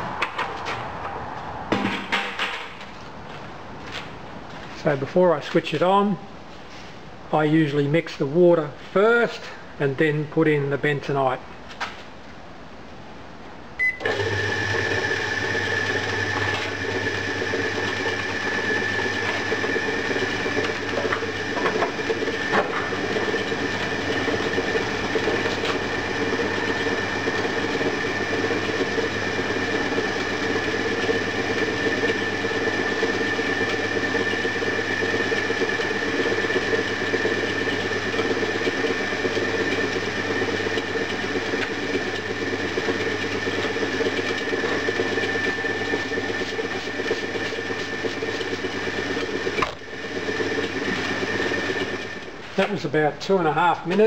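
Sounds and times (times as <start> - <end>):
motor hum and whine: 13.8 - 52.8
mixer churning sand: 14.0 - 54.0.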